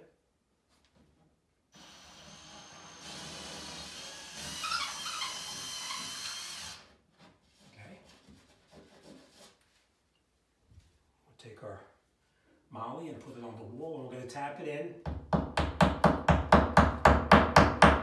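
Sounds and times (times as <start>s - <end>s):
cordless drill drilling drywall: 1.8s - 7.0s.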